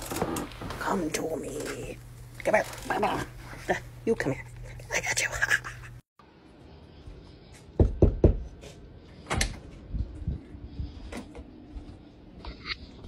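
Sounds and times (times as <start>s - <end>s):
door knocking as it moves: 7.8s - 8.4s.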